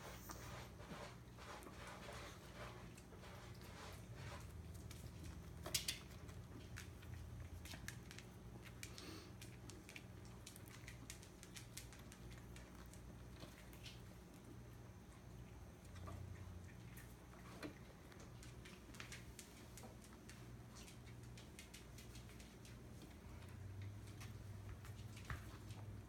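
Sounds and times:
paws tapping on wooden floor: 15.8 - 26.0.

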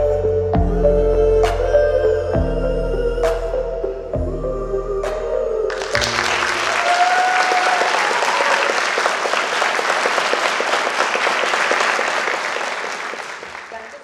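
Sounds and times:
audience applauding: 5.7 - 14.0.

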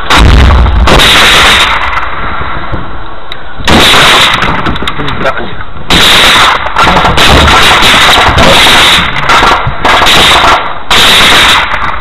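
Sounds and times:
automatic gunfire bursts: 0.9 - 2.0, 3.7 - 4.6, 5.9 - 12.0.

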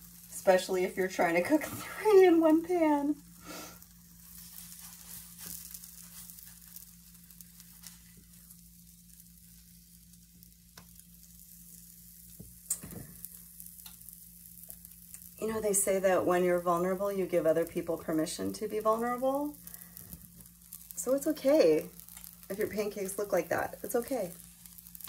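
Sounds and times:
low steady hum: 0.0 - 25.0
pancakes sizzling in a frying pan: 0.0 - 25.0.

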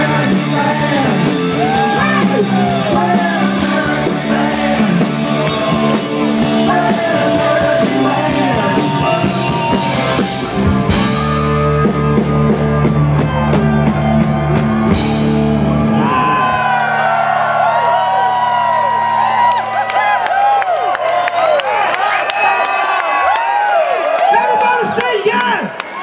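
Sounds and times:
drum and cymbal hits: 0.0 - 16.1
crowd singing or shouting: 0.0 - 16.9
live rock band playing: 0.0 - 17.6
crowd cheering: 0.0 - 26.0.

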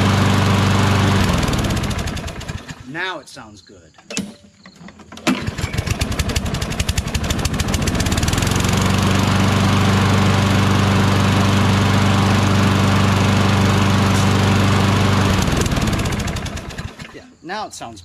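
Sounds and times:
lawn mower engine running: 0.0 - 3.0, 5.1 - 17.3.

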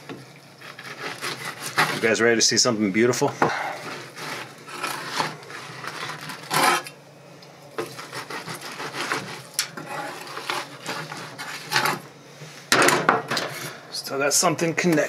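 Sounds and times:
knife scraping on cutting board: 0.6 - 2.2, 3.4 - 6.9, 7.8 - 12.1, 13.3 - 13.8.

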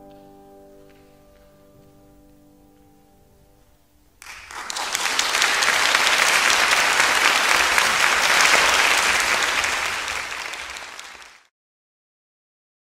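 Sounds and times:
piano notes: 0.0 - 4.9
audience applauding: 4.2 - 11.5.

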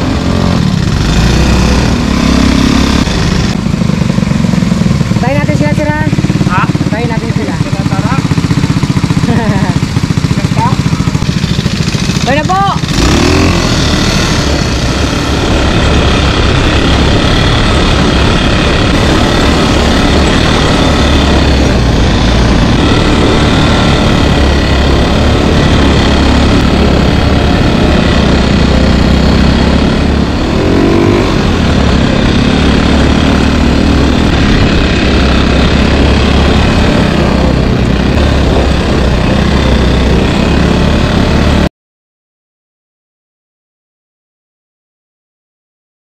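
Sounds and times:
off-road buggy engine running: 0.0 - 41.7
rumbling road noise: 0.0 - 41.7.

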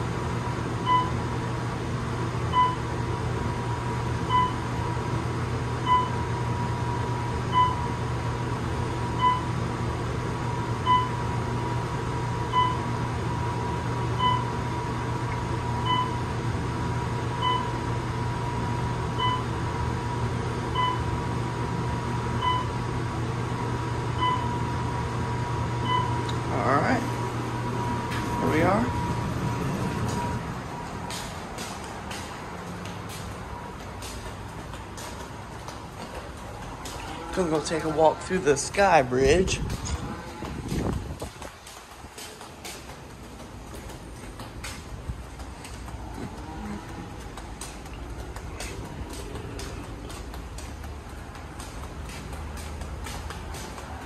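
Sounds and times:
elevator humming and whining: 0.0 - 54.0
short elevator beeps: 0.8 - 1.2, 2.5 - 2.8, 4.3 - 4.6, 7.5 - 7.9, 9.2 - 9.5, 10.9 - 11.2, 12.5 - 12.8, 14.2 - 14.5, 15.8 - 16.2, 20.8 - 21.1, 22.4 - 22.8.

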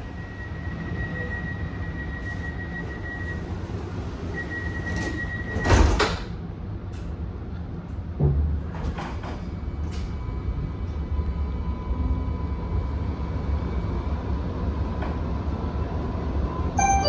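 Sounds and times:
tram low rumble: 0.0 - 17.0
high steady tone: 16.8 - 17.0.

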